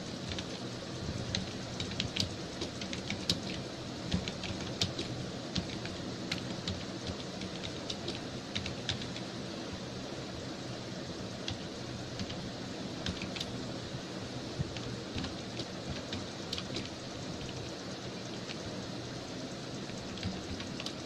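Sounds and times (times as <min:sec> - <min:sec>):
low hum and hiss: 0:00.0 - 0:21.0
keyboard typing clicks: 0:01.3 - 0:09.3, 0:13.0 - 0:13.5, 0:14.7 - 0:17.6, 0:19.9 - 0:21.0.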